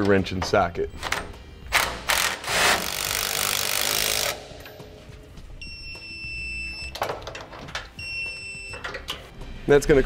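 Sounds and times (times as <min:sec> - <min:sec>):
power tool running: 0:01.8 - 0:04.5.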